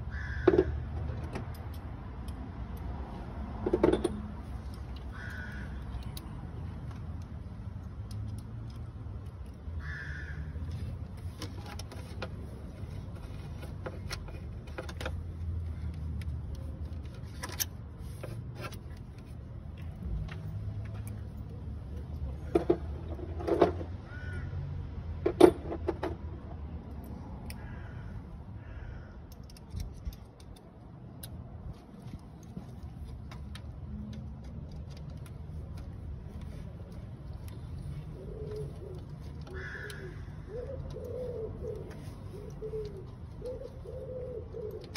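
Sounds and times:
crow cawing: 0:00.0 - 0:00.8, 0:05.1 - 0:05.8, 0:09.8 - 0:10.6, 0:24.1 - 0:24.6, 0:27.6 - 0:29.3, 0:39.5 - 0:40.8.

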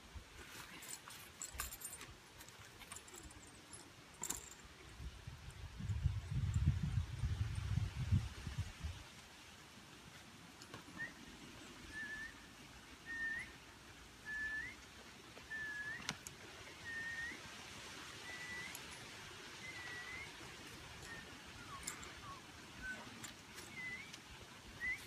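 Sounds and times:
short whistled notes: 0:15.5 - 0:16.1, 0:16.8 - 0:17.4, 0:18.2 - 0:18.9, 0:19.6 - 0:20.4, 0:21.1 - 0:24.2.

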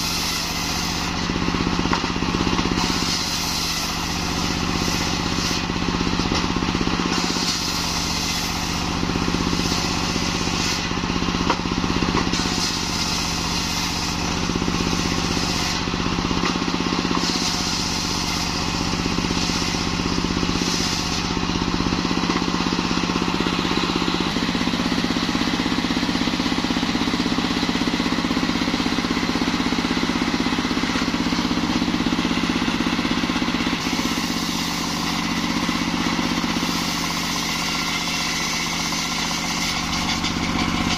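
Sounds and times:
saw blade hissing through wood: 0:00.0 - 0:01.3, 0:02.8 - 0:05.8, 0:07.1 - 0:11.0, 0:12.3 - 0:16.0, 0:17.0 - 0:26.1, 0:33.5 - 0:40.9
engine drone: 0:00.0 - 0:40.9.

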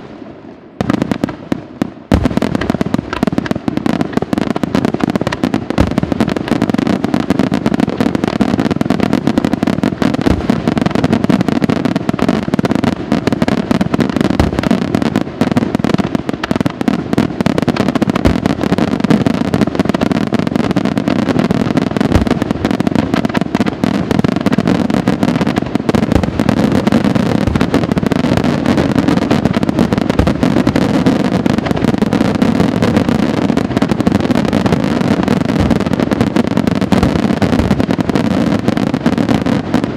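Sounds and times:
firework shells bursting: 0:02.0 - 0:06.6, 0:22.1 - 0:33.1.

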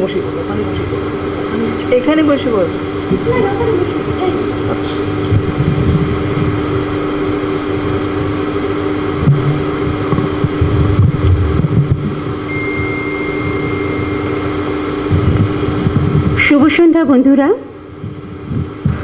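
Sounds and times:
electric fan hum: 0:00.0 - 0:19.0
low buzzing tone: 0:00.0 - 0:19.0
faint high tone: 0:12.5 - 0:14.5.

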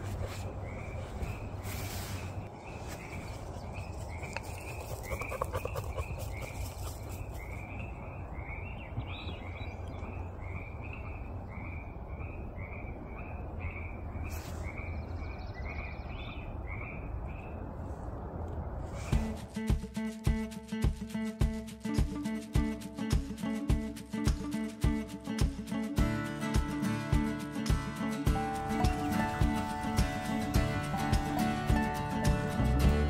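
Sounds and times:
frog calling: 0:04.8 - 0:06.6.

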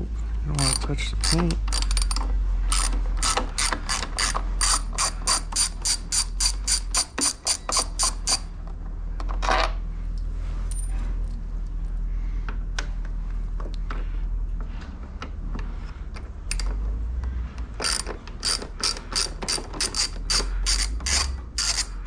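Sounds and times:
hand ratchet clicking: 0:00.6 - 0:08.5, 0:17.7 - 0:22.0.

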